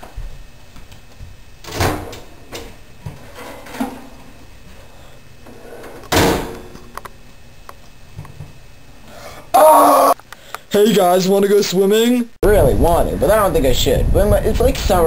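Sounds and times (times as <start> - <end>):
microwave door shutting with bang: 1.6 - 2.7, 6.1 - 6.8.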